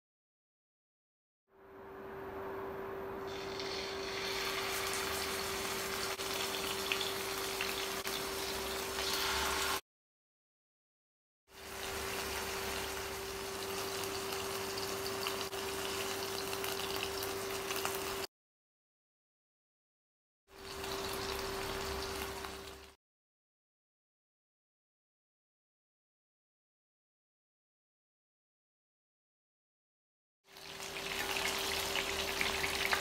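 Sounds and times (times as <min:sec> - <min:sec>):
chicken sizzling in hot oil: 0:03.3 - 0:09.8, 0:11.5 - 0:18.3, 0:20.5 - 0:23.0, 0:30.5 - 0:33.0.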